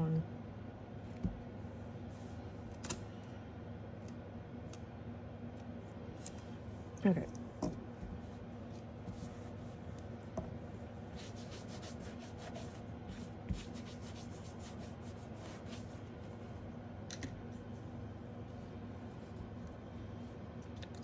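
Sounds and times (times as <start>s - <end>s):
scratchy rubbing and sliding: 11.1s - 16.4s.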